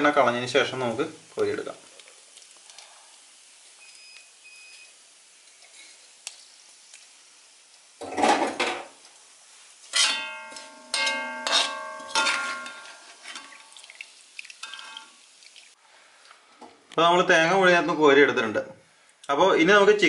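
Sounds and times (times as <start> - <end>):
metal spoon scraping wok: 9.8 - 13.6, 14.6 - 15.1
spoon striking wok: 10.0 - 13.5.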